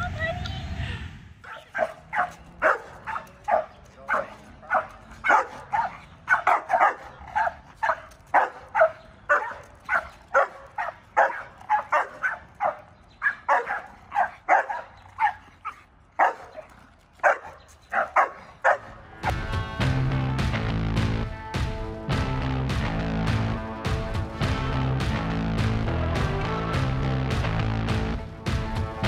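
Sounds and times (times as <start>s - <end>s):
dog barking: 1.5s - 19.0s.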